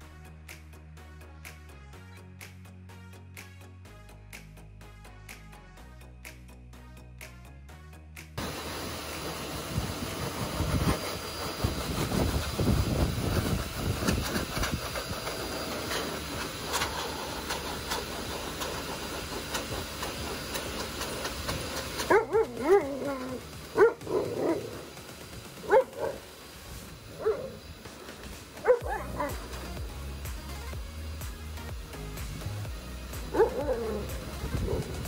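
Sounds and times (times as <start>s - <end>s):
handheld blower running: 8.4s - 35.0s
dog howling: 22.1s - 24.8s, 28.6s - 29.5s, 33.3s - 34.9s.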